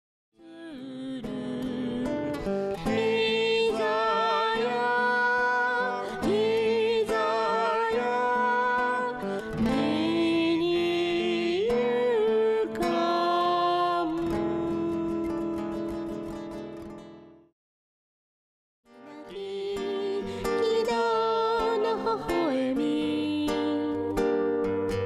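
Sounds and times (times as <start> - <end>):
strummed acoustic guitar: 1.2 - 17.5, 18.9 - 25.0
man singing: 2.8 - 15.6.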